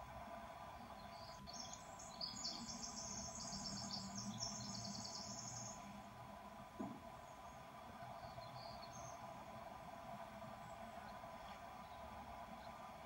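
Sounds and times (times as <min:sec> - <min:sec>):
faint steady hum: 0:00.0 - 0:13.0
bird chirping trill: 0:01.1 - 0:05.8
soft knock: 0:06.8 - 0:07.0.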